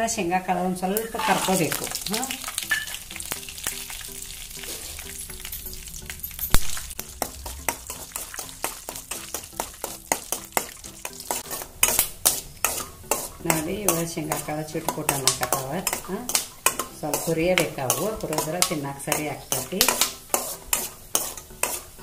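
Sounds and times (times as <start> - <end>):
peanuts sizzling in oil: 0.8 - 22.0
sharp crackles and pops: 1.0 - 12.6
spoon stirring and scraping: 1.1 - 22.0.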